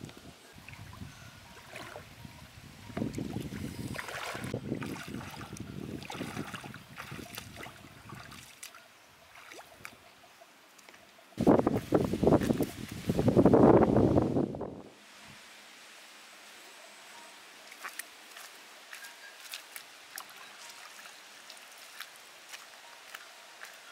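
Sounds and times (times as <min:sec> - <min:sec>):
feet wading through shallow water: 0:00.6 - 0:02.2, 0:02.8 - 0:10.0, 0:17.6 - 0:23.9.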